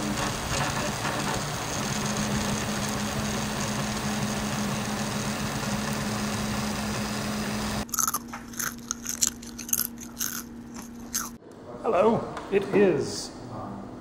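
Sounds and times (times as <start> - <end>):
printer mechanical whir: 0.0 - 7.9.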